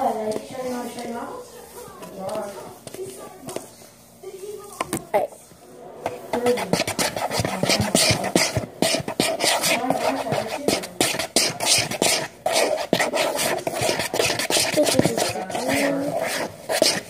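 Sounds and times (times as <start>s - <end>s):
utensil scraping bowl: 5.9s - 17.0s.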